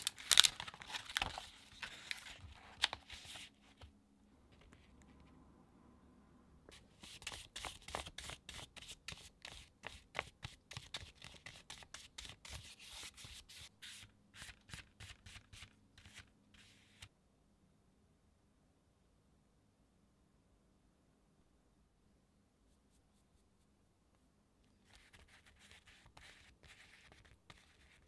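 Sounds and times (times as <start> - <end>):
paintbrush scratching on paper: 24.8 - 28.0.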